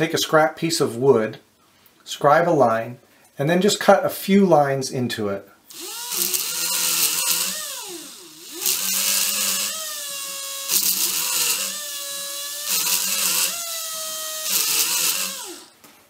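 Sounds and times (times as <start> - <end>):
cutter wheel hissing through wood: 5.7 - 15.8
machine drive whining: 5.7 - 15.8.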